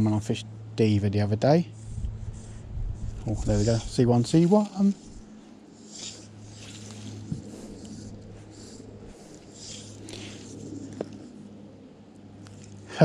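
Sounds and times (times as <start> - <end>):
steady low hum: 0.0 - 13.0
fly line swishing: 1.8 - 11.5.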